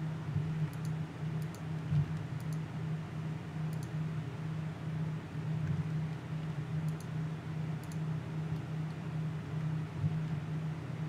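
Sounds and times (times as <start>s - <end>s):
low electrical hum: 0.0s - 11.0s
computer mouse clicks: 0.7s - 2.6s, 3.7s - 4.0s, 6.8s - 7.2s, 7.8s - 9.0s.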